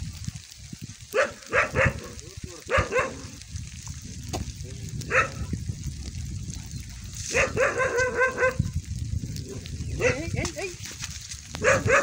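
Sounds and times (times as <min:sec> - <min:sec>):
steady low rumble: 0:00.0 - 0:12.0
dog barking: 0:01.1 - 0:03.4, 0:05.1 - 0:05.4, 0:07.3 - 0:08.7, 0:09.5 - 0:10.3, 0:11.6 - 0:12.0.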